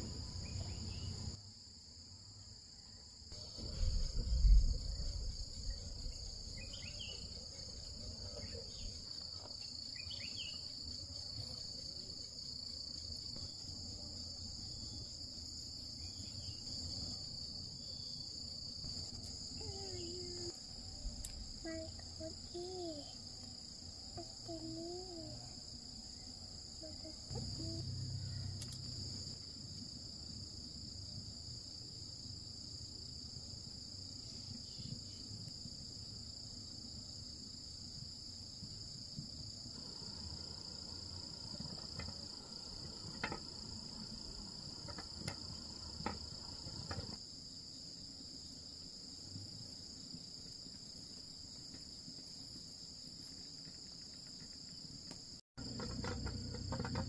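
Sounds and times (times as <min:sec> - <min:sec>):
insects trilling: 0:00.0 - 0:57.0.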